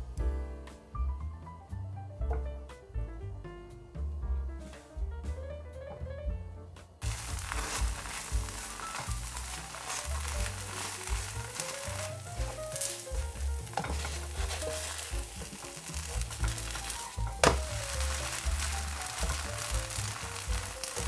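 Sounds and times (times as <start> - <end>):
pancake sizzling in oil: 7.0 - 21.0
plastic spatula scraping pan: 7.2 - 19.4.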